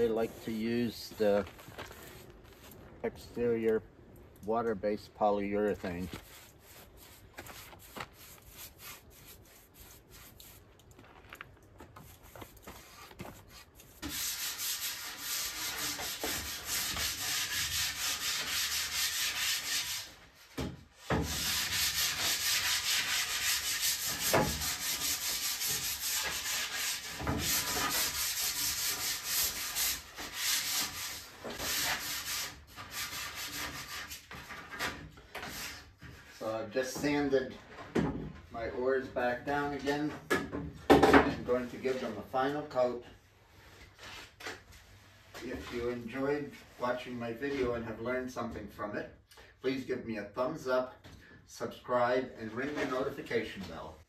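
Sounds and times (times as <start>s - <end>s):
sandpaper rubbing on wood: 1.9s - 2.8s, 5.8s - 10.7s, 12.0s - 20.2s, 21.2s - 34.4s.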